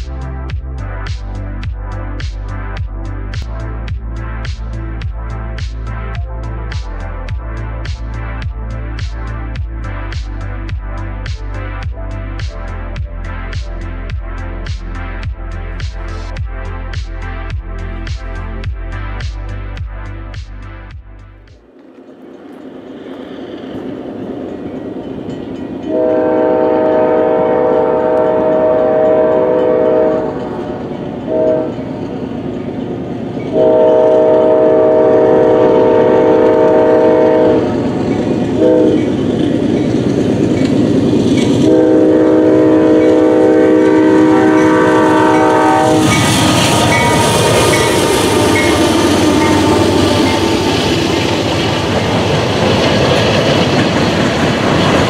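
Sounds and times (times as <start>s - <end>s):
locomotive engine and wheels: 0.0s - 55.0s
train rumble: 0.0s - 55.0s
locomotive air horn chord: 25.8s - 32.0s, 33.5s - 39.1s, 41.5s - 51.9s.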